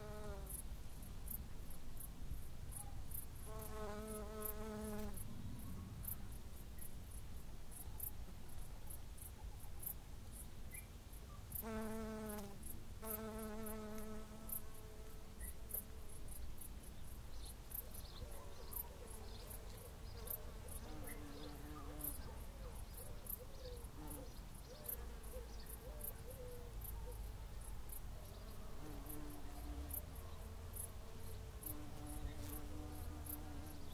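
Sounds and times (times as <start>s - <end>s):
flying insect buzzing: 3.5s - 5.2s, 11.6s - 15.8s, 28.6s - 33.9s.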